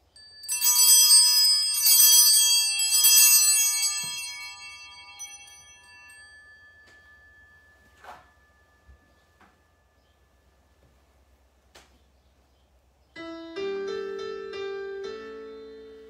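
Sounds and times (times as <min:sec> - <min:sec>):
altar bells ringing: 0:00.0 - 0:11.1.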